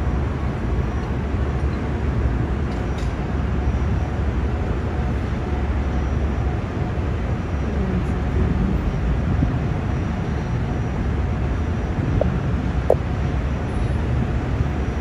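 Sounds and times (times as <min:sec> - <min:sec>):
vehicle engines rumbling: 0:00.0 - 0:15.0.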